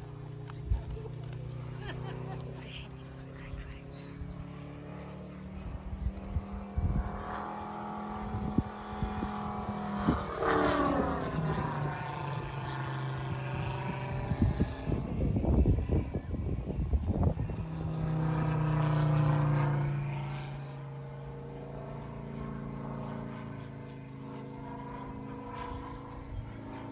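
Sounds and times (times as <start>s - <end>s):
model airplane engine droning: 0.0s - 26.9s
wind buffeting microphone: 3.5s - 19.2s.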